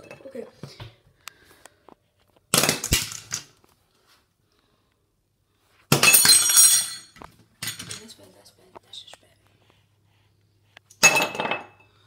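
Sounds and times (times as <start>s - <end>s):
bottles clattering on porcelain: 5.9s - 8.1s, 11.0s - 12.0s.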